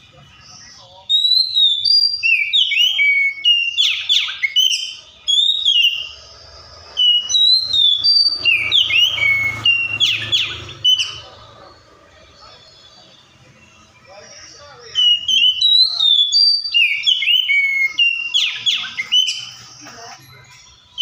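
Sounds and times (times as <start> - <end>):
bird singing whistled phrases: 0.5 - 11.4, 14.4 - 20.4.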